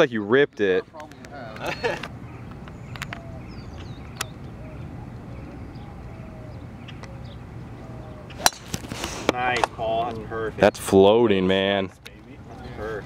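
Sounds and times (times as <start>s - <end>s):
low background noise: 0.0s - 13.0s
golf driver striking ball: 8.4s - 8.9s.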